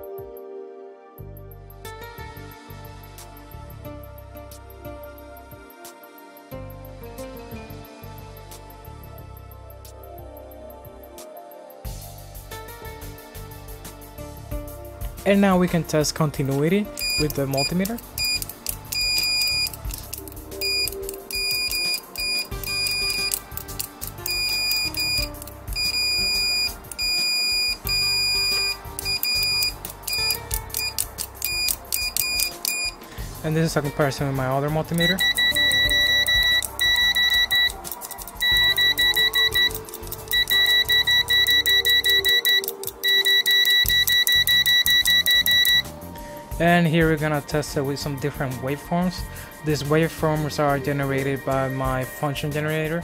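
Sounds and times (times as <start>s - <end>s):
background music: 0.0s - 53.0s
multimeter continuity beeps: 16.9s - 33.0s, 34.9s - 45.9s.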